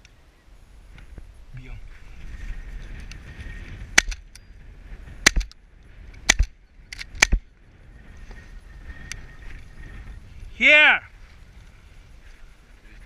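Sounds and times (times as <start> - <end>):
shotgun shots: 5.2 - 5.5.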